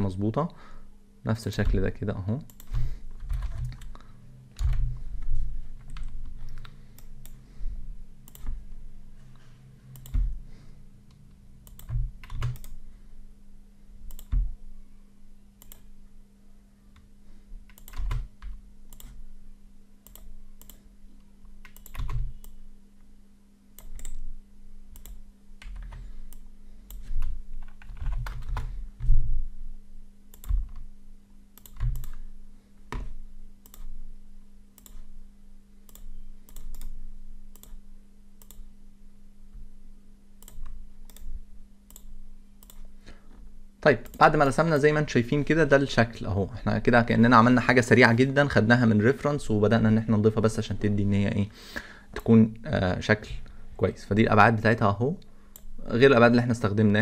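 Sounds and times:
steady low hum: 0.0 - 57.0
computer keyboard keystrokes: 2.5 - 4.0, 4.6 - 4.9, 10.0 - 10.3, 11.7 - 12.8, 14.1 - 14.5, 17.7 - 19.2, 21.6 - 22.6, 23.8 - 24.2, 25.0 - 28.7, 30.3 - 30.8, 31.6 - 32.2, 35.9 - 37.0
mouse clicks: 9.9 - 10.3, 14.1 - 14.4, 20.0 - 20.8, 21.6 - 22.6, 34.8 - 35.0, 35.9 - 37.8, 38.4 - 38.7, 41.9 - 42.9.

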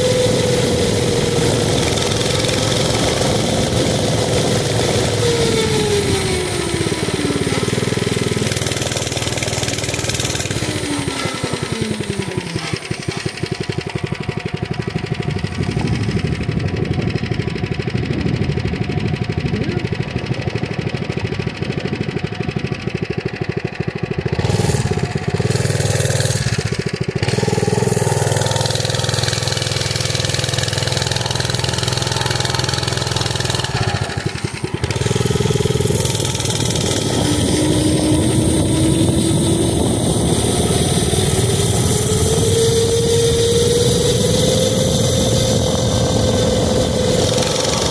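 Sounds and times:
wind noise on microphone: 0.0 - 8.6, 14.7 - 22.8, 34.8 - 47.9
small motorbike engine running: 0.0 - 47.9.

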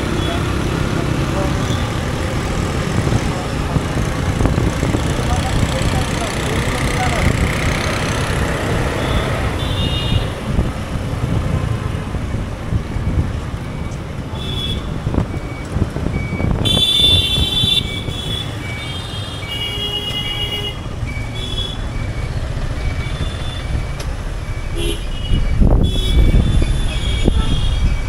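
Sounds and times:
vehicle horns honking: 8.9 - 10.4, 14.4 - 15.0, 16.6 - 21.9, 24.8 - 28.0.

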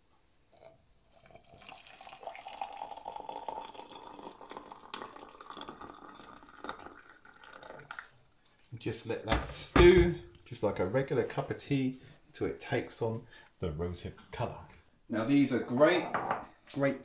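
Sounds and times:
water pouring into glass jar: 0.4 - 8.8.

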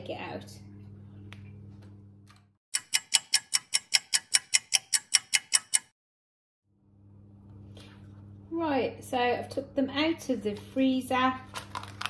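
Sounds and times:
clock ticking: 2.8 - 5.9.

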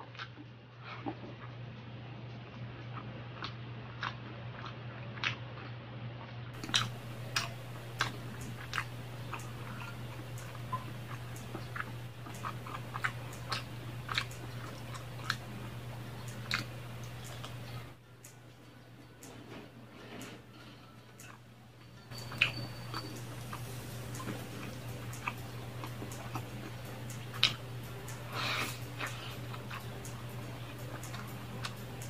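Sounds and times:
wet chewing and mouth smacks: 2.7 - 5.7, 6.6 - 18.0, 22.1 - 32.0
low hum: 6.6 - 32.0.

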